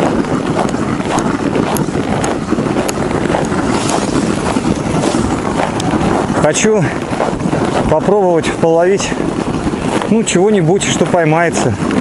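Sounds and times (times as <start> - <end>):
footsteps crunching on snow: 0.0 - 12.0
wind buffeting microphone: 0.0 - 12.0.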